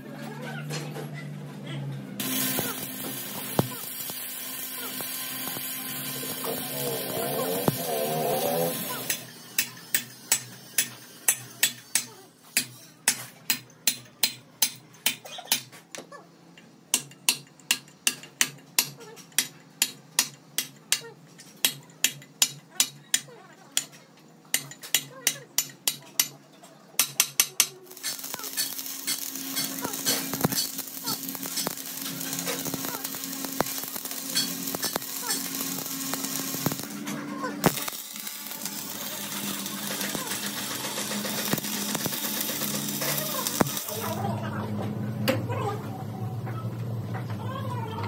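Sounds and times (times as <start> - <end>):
electric arc welding hiss: 2.2 - 11.4, 27.8 - 37.0, 37.6 - 44.3.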